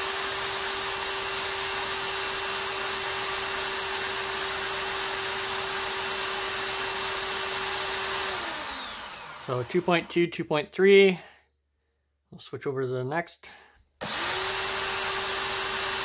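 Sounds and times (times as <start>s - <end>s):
drill whine: 0.0s - 10.1s, 14.0s - 16.0s.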